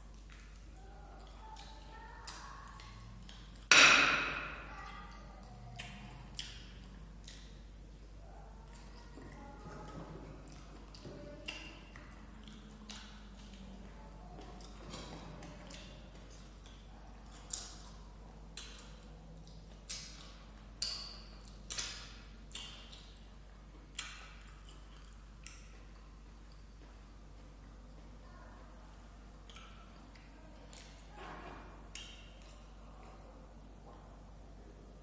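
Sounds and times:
soft chewing: 0:00.0 - 0:03.7, 0:04.4 - 0:35.0
wet finger licking smacks: 0:05.4 - 0:07.7, 0:10.4 - 0:26.6, 0:28.8 - 0:31.1.

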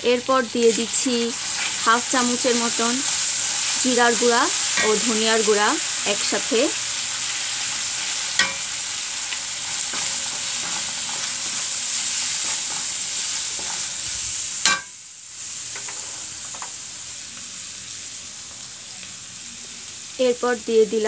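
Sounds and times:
vegetables sizzling in hot oil: 0:00.0 - 0:21.0
spatula scraping a pan: 0:00.6 - 0:01.9, 0:09.6 - 0:14.9, 0:15.7 - 0:16.7.

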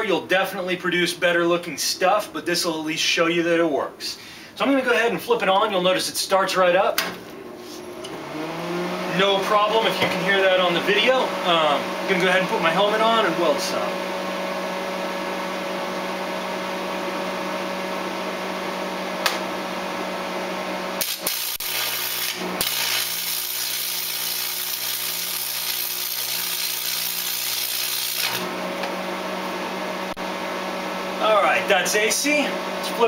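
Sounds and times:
welder humming: 0:07.3 - 0:33.0
welding arc sizzling: 0:21.0 - 0:28.9.

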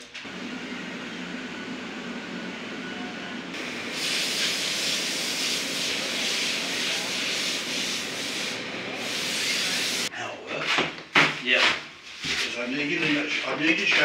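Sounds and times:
rushing air hiss: 0:03.6 - 0:10.1.

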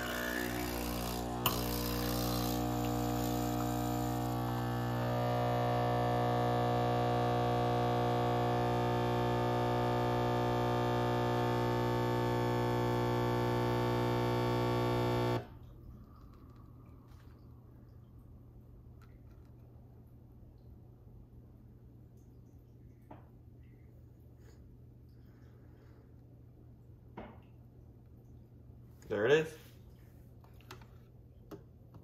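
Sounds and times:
espresso machine pump buzzing: 0:00.0 - 0:15.6.

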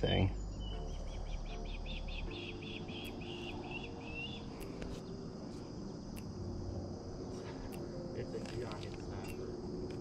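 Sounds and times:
high insect drone: 0:00.0 - 0:10.0.

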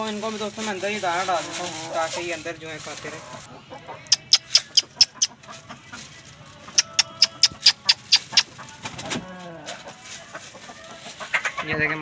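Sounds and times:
chickens pecking grain on concrete: 0:01.5 - 0:12.0
hen clucking: 0:01.8 - 0:08.9, 0:09.8 - 0:12.0.

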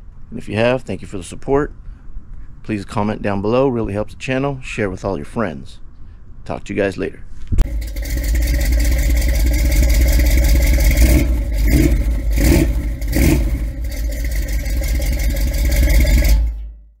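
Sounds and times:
car engine running: 0:07.6 - 0:16.8.

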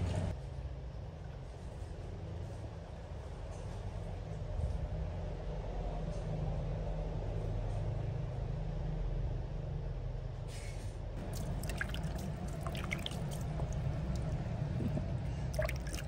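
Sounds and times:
steady low hum: 0:11.1 - 0:16.0
water dripping on concrete floor: 0:11.2 - 0:14.6, 0:15.5 - 0:16.0.

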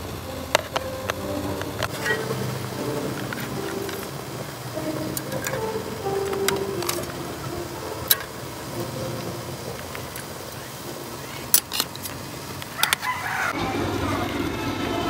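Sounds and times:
metal tongs clicking on pot: 0:11.5 - 0:13.0
rooster crowing: 0:12.8 - 0:14.4.

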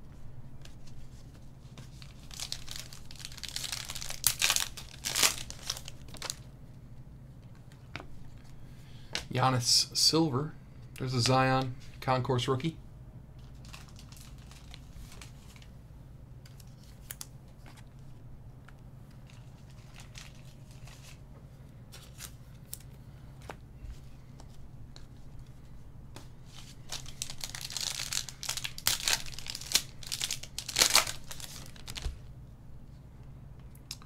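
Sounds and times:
foil pack crinkling and tearing: 0:01.9 - 0:06.4, 0:13.4 - 0:15.7, 0:19.2 - 0:21.2, 0:26.6 - 0:32.2.

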